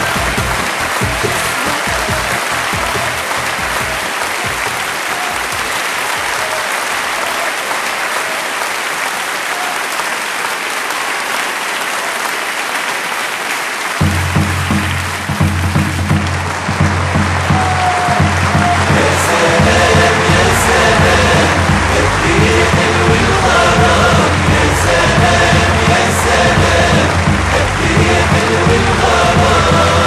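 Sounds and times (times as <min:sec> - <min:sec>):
low drumbeat: 0:00.0 - 0:04.8, 0:14.0 - 0:30.0
crowd applauding: 0:00.0 - 0:30.0.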